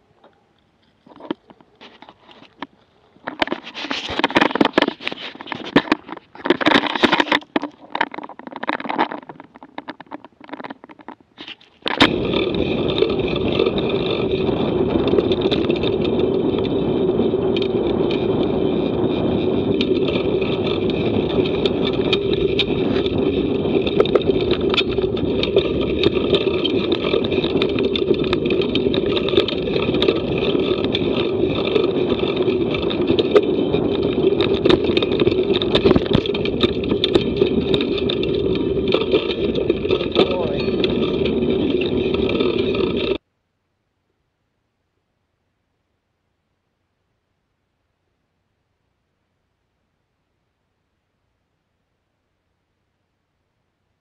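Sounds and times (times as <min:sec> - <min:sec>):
bike rattles and scrapes: 0:00.2 - 0:43.2
tyres rolling over gravel and leaves: 0:00.6 - 0:43.2
wind on microphone: 0:11.8 - 0:43.2.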